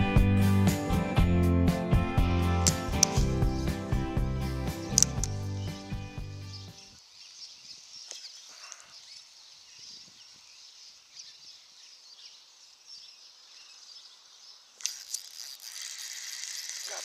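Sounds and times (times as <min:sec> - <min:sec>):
background music: 0:00.0 - 0:06.9
distant birds chirping: 0:02.3 - 0:17.0.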